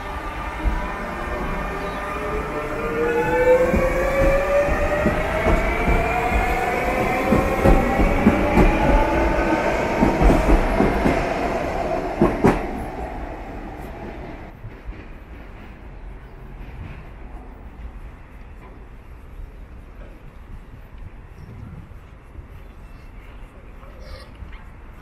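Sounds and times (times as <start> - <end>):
wheels clacking over rail joints: 0.0 - 11.4
train traction motors whining: 0.0 - 14.5.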